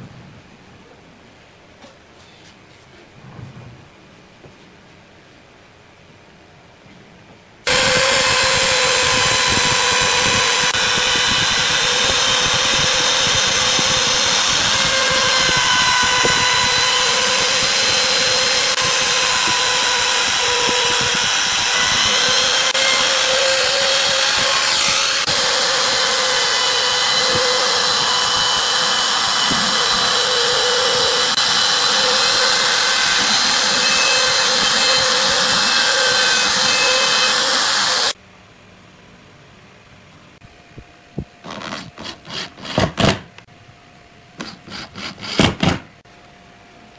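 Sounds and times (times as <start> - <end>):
trim router whining: 7.7 - 38.2.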